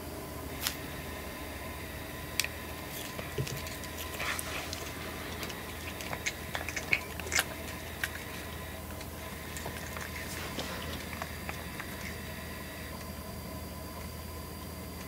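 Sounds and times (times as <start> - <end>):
cat chewing grass: 2.2 - 14.2.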